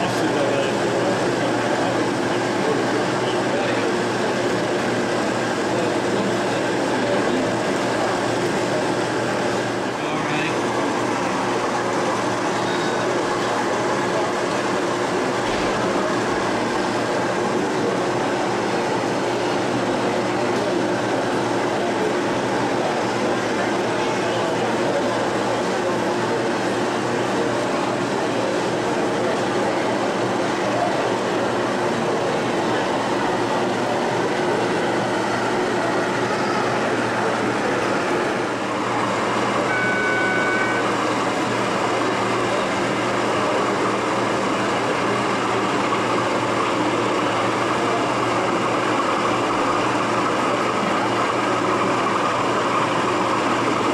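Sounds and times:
exhibition hall hubbub: 0:00.0 - 0:53.9
model train running on track: 0:00.0 - 0:53.9
steady high tone: 0:32.1 - 0:43.8.

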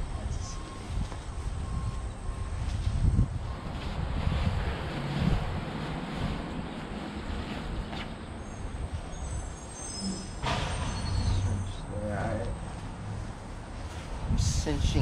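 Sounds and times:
wind rumble on microphone: 0:00.0 - 0:09.6, 0:13.1 - 0:15.0.

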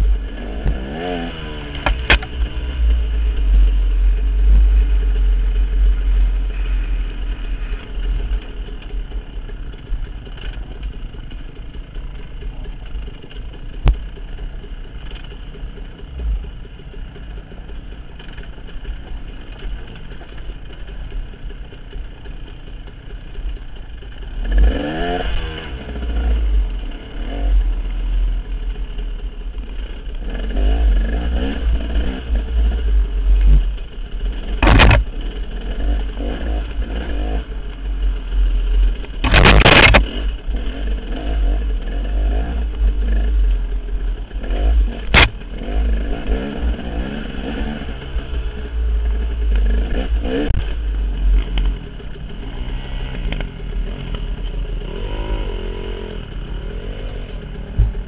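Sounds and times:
dirt bike engine revving: 0:00.0 - 0:08.4, 0:24.3 - 0:28.3, 0:30.2 - 0:58.0.

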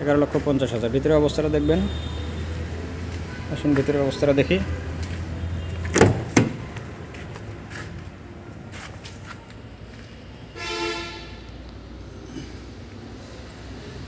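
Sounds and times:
car horn toot: 0:10.6 - 0:11.5.

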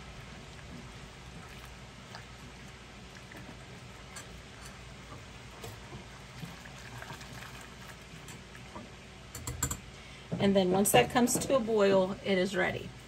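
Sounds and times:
sauce ticking and pattering: 0:00.0 - 0:09.5.

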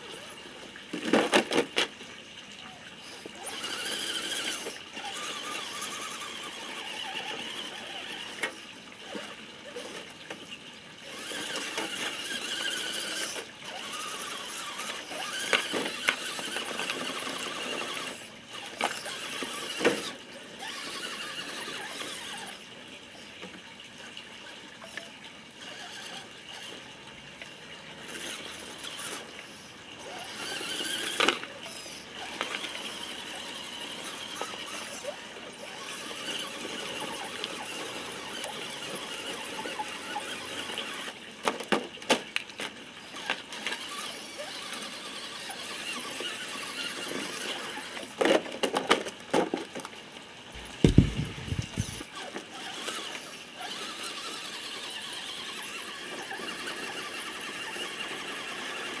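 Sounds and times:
electric motor and gear whine: 0:02.6 - 0:41.8, 0:42.6 - 0:48.9, 0:50.5 - 0:59.0
toy truck knocking against stones: 0:50.6 - 0:52.0.

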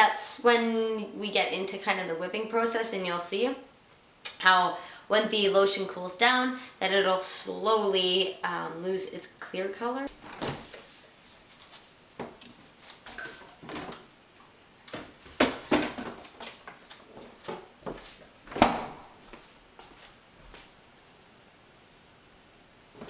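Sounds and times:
kitchen items knocking and clunking: 0:14.9 - 0:16.8.

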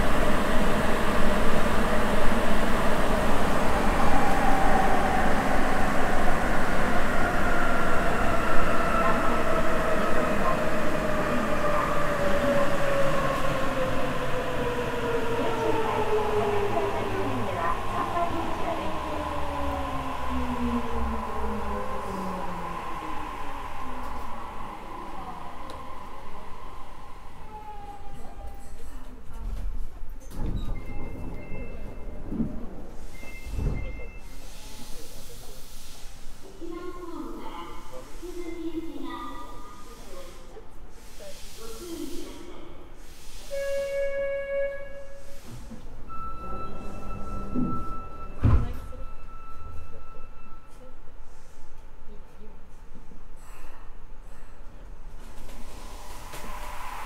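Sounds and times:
train rumbling to a stop: 0:00.0 - 0:57.0
air hiss: 0:39.9 - 0:44.0, 0:55.5 - 0:57.0.

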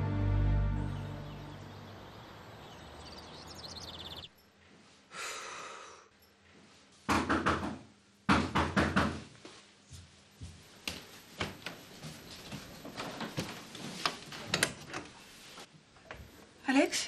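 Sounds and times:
knocking on a door: 0:07.1 - 0:09.3.

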